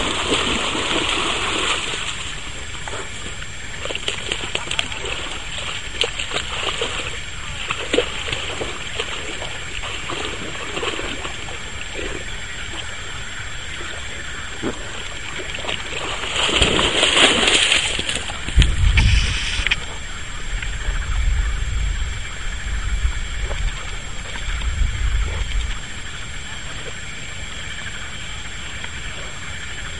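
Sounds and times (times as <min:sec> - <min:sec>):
dog splashing through water: 0:00.0 - 0:13.0, 0:13.7 - 0:19.8
low rumble on microphone: 0:17.8 - 0:29.9.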